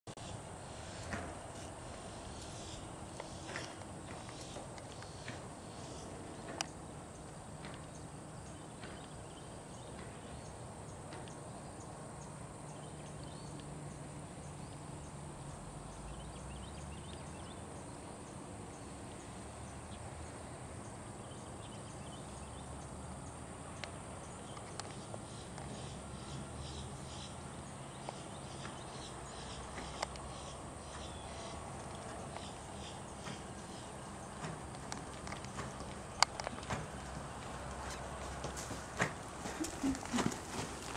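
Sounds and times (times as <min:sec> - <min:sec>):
horse hoofbeats on sand: 0:31.9 - 0:40.9.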